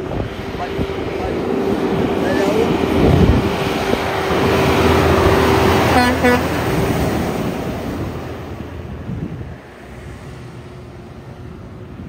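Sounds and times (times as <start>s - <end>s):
heavy truck passing: 0.0s - 12.0s
truck horn toots: 5.6s - 6.8s.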